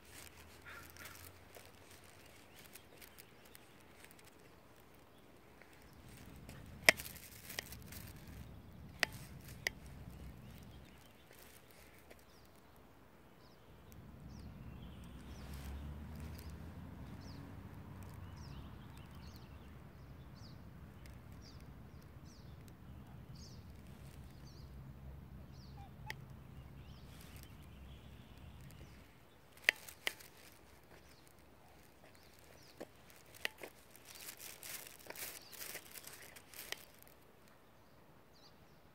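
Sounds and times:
rustling and clicking: 0.0 - 12.6, 26.0 - 37.6
small bird chirping: 0.0 - 37.2
low engine hum: 5.8 - 11.2, 13.7 - 29.6.

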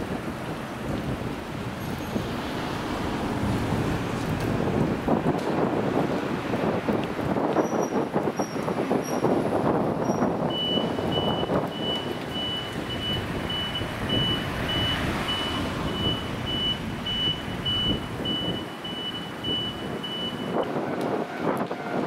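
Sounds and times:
bus: 0.0 - 22.0
street traffic: 0.0 - 22.0
electronic warning beeper: 10.5 - 20.7.

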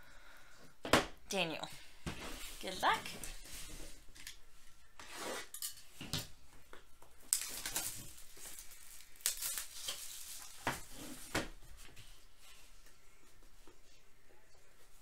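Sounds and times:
plastic wrap rustling and crinkling: 7.1 - 12.8.

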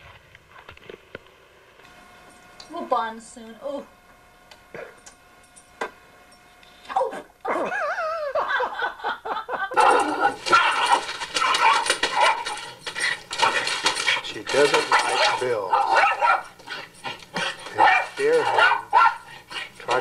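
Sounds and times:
dog barking: 9.8 - 12.8, 13.4 - 20.0.

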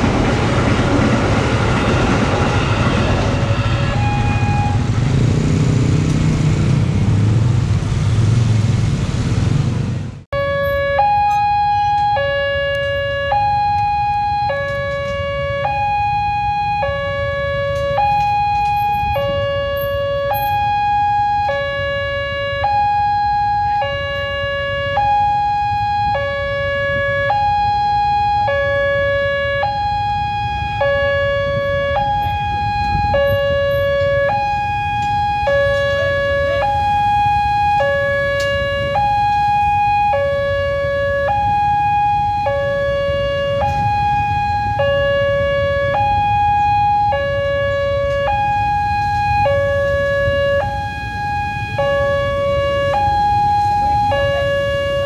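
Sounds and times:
low rumble: 0.0 - 10.2
level crossing two-tone alarm: 1.8 - 5.0, 10.4 - 55.0.

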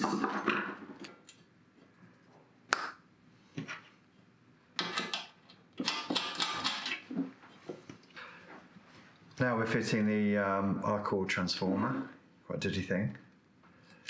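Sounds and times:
small metal clicks and rattles: 4.8 - 7.0
tapping and scraping on metal: 4.8 - 7.1.

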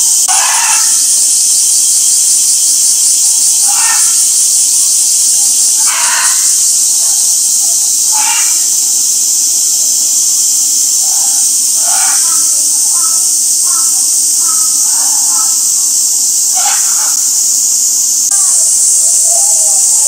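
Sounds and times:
cicada chorus drone: 0.0 - 20.0.

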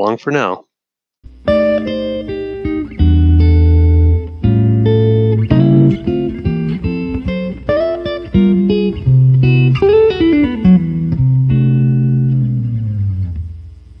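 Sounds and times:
plucked guitar notes: 1.4 - 13.6.

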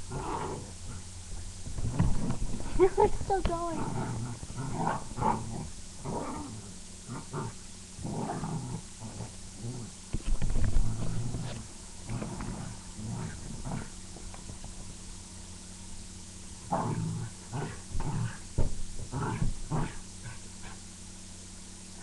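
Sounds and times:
animals growling and snarling: 0.1 - 1.1, 3.7 - 10.0, 10.6 - 14.0, 16.6 - 20.8.

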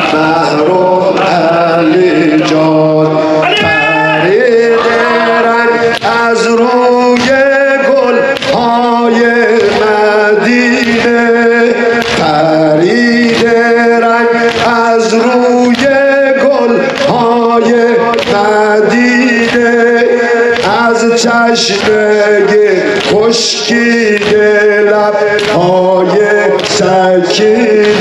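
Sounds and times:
men chanting a lament: 0.0 - 28.0
hands beating on chests: 12.0 - 12.5, 14.4 - 16.1, 18.1 - 28.0.

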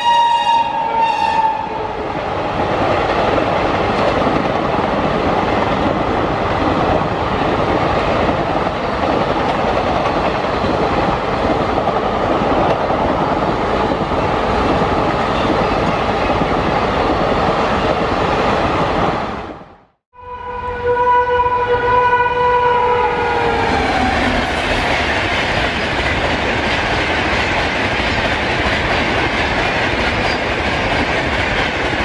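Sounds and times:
train horn held note: 0.0 - 1.9, 20.2 - 24.5
train wheels clattering on rails: 2.6 - 18.1, 23.7 - 32.0.

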